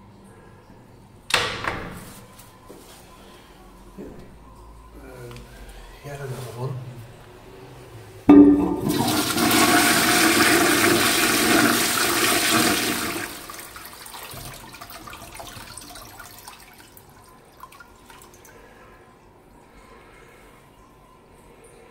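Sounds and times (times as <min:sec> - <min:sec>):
toilet flushing: 0:08.3 - 0:18.8
water trickling in toilet bowl: 0:08.3 - 0:21.8.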